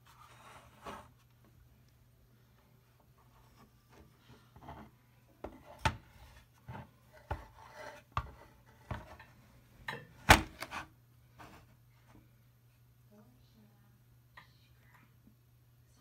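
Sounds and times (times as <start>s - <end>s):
faint low hum: 0.0s - 16.0s
knocks clicks and scrapes on desk: 3.9s - 9.3s.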